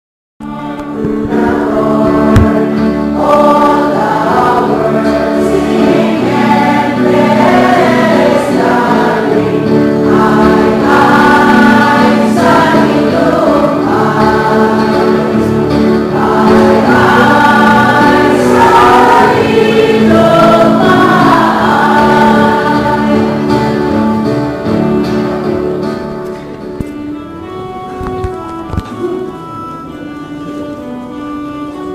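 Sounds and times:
choir singing: 0.4 - 25.8
sustained accompaniment: 0.4 - 31.9.

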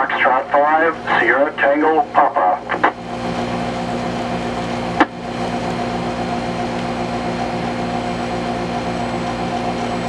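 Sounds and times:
radio speaker hiss and hum: 0.0 - 5.3.

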